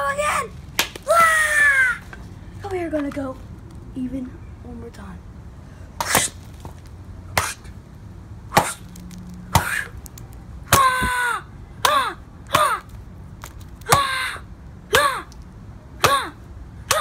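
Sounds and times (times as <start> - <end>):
boy shouting: 0.0 - 2.1, 10.7 - 12.9, 13.9 - 15.3, 16.0 - 17.0.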